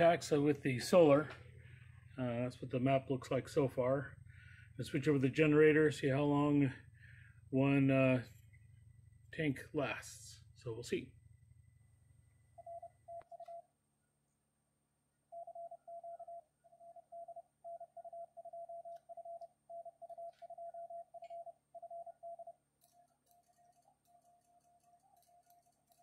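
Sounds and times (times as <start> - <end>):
morse code tones: 12.5 - 13.6, 15.3 - 22.6
fainter morse code tone: 12.5 - 13.7, 15.3 - 26.0.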